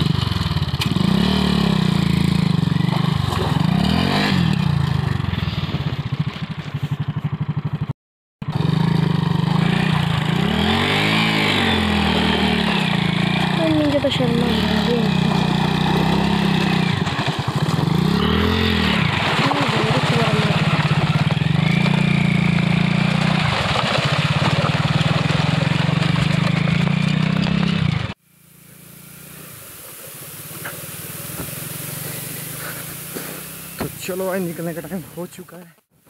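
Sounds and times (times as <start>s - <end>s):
motorcycle engine revving: 0.0s - 35.9s
water splashing: 2.8s - 4.0s, 18.8s - 21.2s, 28.7s - 35.4s
quiet hiss: 28.2s - 36.0s.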